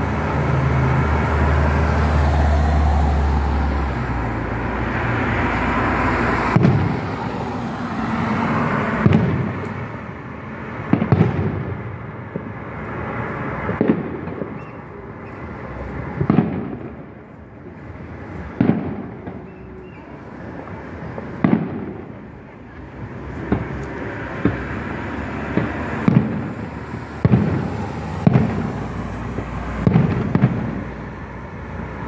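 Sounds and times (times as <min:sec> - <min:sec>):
firework shells booming: 0:06.2 - 0:07.5, 0:08.2 - 0:10.0, 0:10.6 - 0:19.7, 0:20.5 - 0:31.1.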